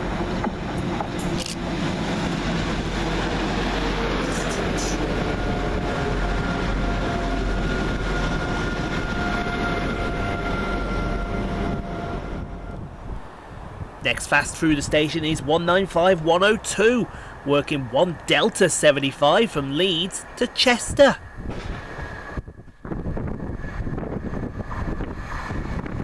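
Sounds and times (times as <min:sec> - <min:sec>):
diesel engines running: 0:00.0 - 0:10.0
train rumble: 0:00.0 - 0:26.0.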